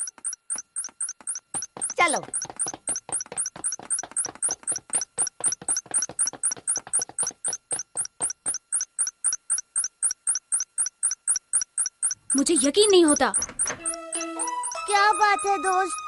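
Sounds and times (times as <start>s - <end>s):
fast chirping beeps: 0.0s - 16.0s
steady high tone: 6.2s - 16.0s.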